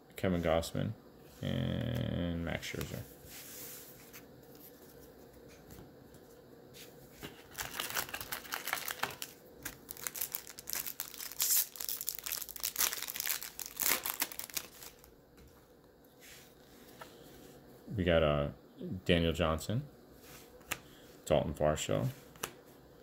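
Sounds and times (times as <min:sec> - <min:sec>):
wrapper tearing and crinkling: 0:07.4 - 0:15.1.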